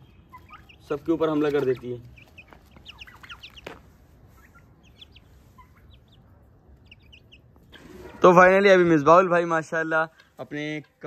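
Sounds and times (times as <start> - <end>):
chicks peeping: 0.0 - 8.8.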